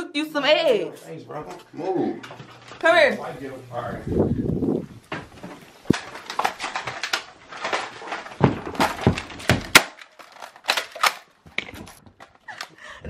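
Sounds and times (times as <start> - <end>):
thumps: 5.1 - 12.2.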